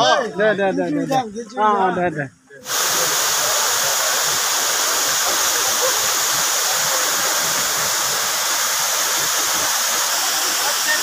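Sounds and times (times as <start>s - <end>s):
waterfall rushing: 2.6s - 11.0s.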